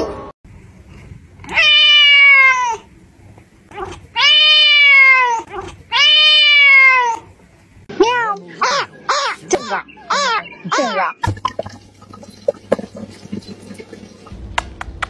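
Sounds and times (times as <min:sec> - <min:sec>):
cat meowing loudly: 0:01.5 - 0:02.9, 0:04.1 - 0:07.3.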